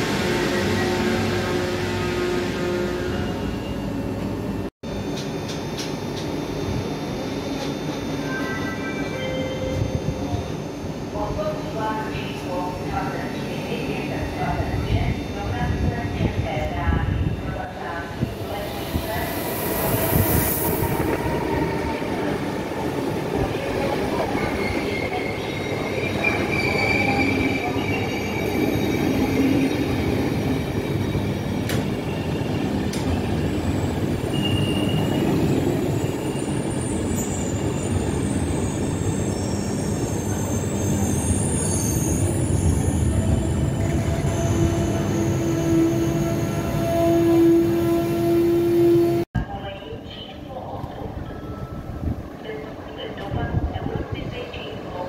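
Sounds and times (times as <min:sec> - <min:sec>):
wheel and brake squeals: 0:34.3 - 0:43.1.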